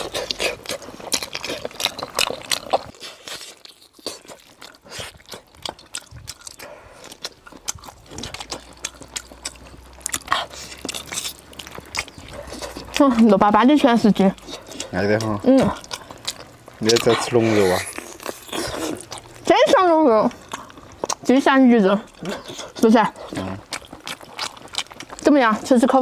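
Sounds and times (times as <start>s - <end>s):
lip and teeth clicks: 0.0s - 26.0s
person chewing close up: 0.0s - 26.0s.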